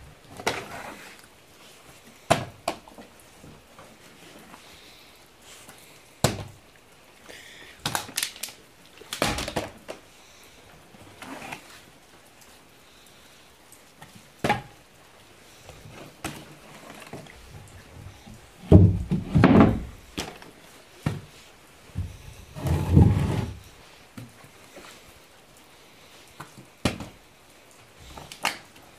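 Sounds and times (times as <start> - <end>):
plastic bottle landing on wooden floor: 9.2 - 9.8, 18.6 - 20.4.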